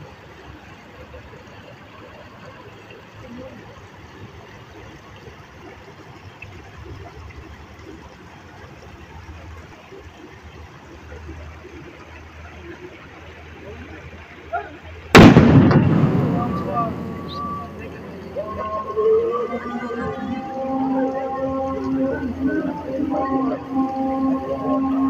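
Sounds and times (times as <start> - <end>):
fountain jets splashing: 0.0 - 25.0
faint voices: 12.4 - 25.0
low rumble: 15.2 - 20.6.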